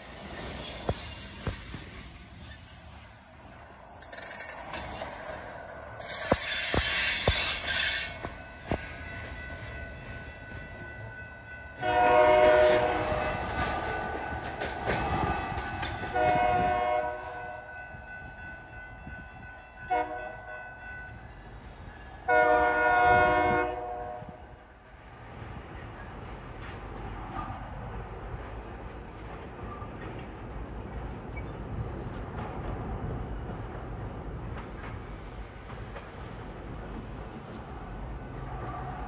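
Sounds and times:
sharp clanks of train cars: 0.0s - 24.2s, 24.9s - 39.0s
rumble of rolling freight cars: 0.0s - 39.0s
locomotive horn blasts: 11.8s - 13.5s, 16.1s - 17.7s, 19.8s - 20.7s, 22.2s - 24.4s.

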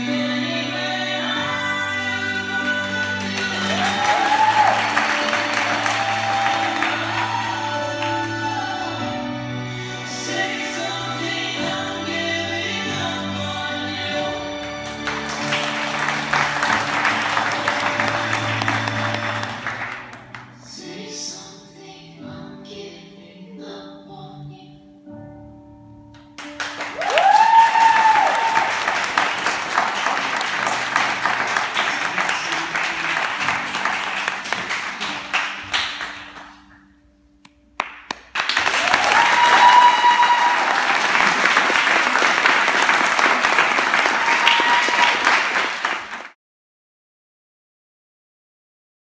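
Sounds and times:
audience clapping and cheering: 2.5s - 8.6s, 14.6s - 20.6s, 26.4s - 36.9s, 37.8s - 46.4s
dance music: 13.4s - 20.1s.

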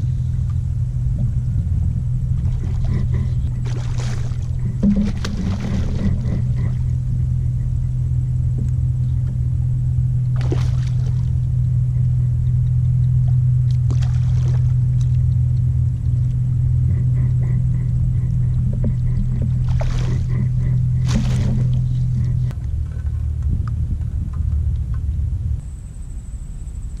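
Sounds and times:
steady low drone: 0.0s - 27.0s
fish splashing at water surface: 3.6s - 6.4s, 10.4s - 11.4s, 13.9s - 15.0s, 19.6s - 20.3s, 21.0s - 21.8s.

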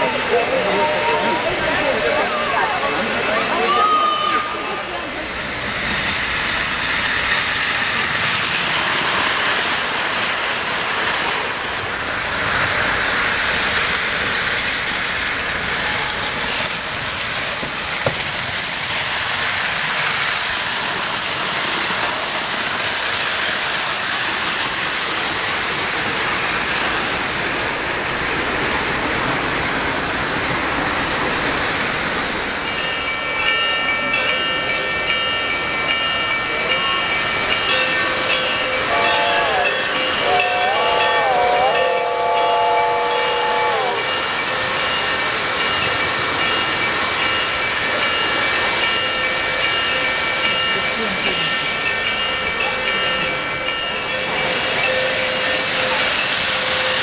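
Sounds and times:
model trains running on track: 0.0s - 57.0s
model steam locomotive whistle chord: 37.7s - 45.3s.

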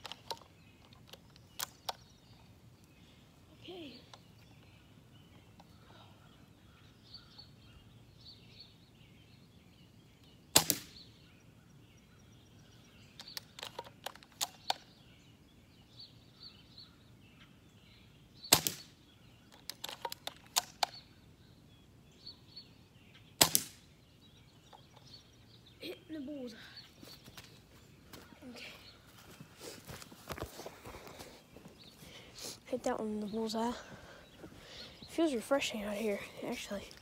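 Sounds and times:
airsoft rifle shots: 10.5s - 11.0s, 18.5s - 18.9s, 23.4s - 23.8s.

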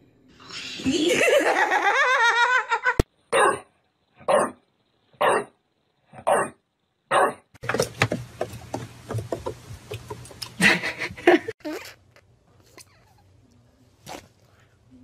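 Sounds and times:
person laughing: 0.8s - 3.0s, 10.6s - 11.6s
bulldog barking: 3.3s - 4.6s, 5.2s - 5.5s, 6.2s - 7.4s.

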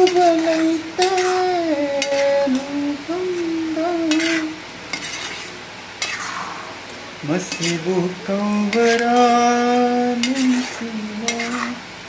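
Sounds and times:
spatula scraping a pan: 0.0s - 2.7s, 4.1s - 6.7s, 7.4s - 8.0s, 8.7s - 11.8s
person singing long notes: 0.0s - 4.6s
syrup bubbling and sizzling: 3.4s - 12.0s.

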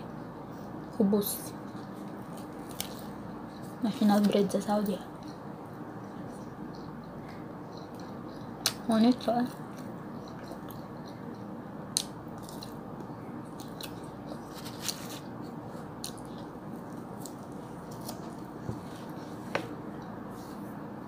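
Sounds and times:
person chewing noodles: 5.2s - 8.8s, 9.5s - 20.7s.

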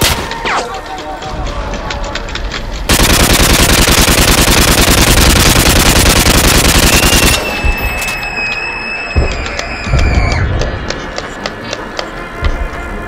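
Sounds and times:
automatic gunfire: 2.9s - 7.6s.

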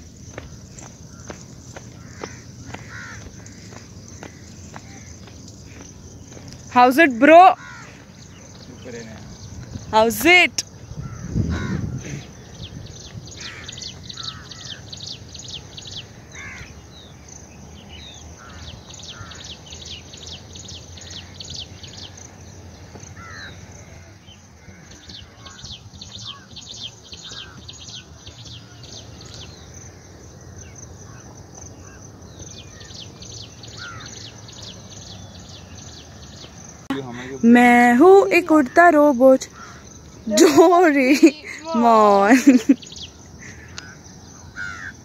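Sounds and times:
crows cawing: 1.0s - 6.5s, 7.4s - 8.8s, 11.0s - 12.5s, 13.4s - 14.9s, 16.0s - 16.8s, 18.4s - 19.6s, 21.0s - 22.2s, 23.2s - 28.1s, 31.0s - 33.0s, 33.6s - 34.5s, 39.4s - 40.0s, 43.4s - 45.0s.

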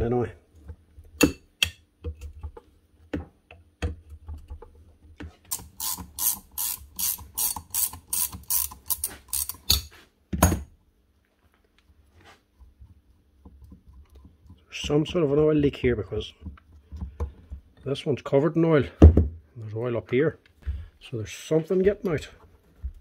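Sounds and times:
ratchet spanner clicking: 5.5s - 9.9s.

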